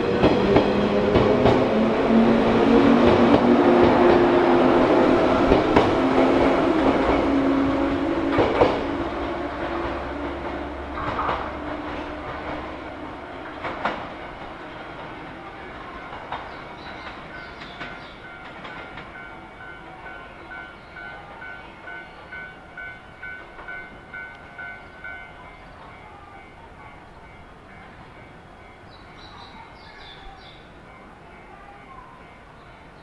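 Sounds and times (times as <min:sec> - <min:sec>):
train wheels clacking on rail joints: 0:00.0 - 0:26.0
train rumble: 0:00.0 - 0:33.0.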